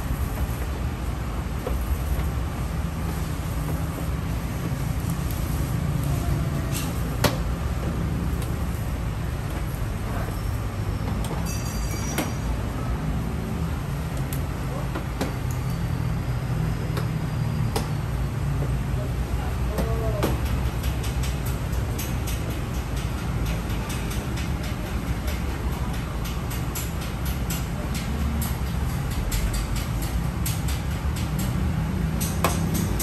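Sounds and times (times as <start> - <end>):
clicks and knocks at wheel arch: 19.7 - 33.0.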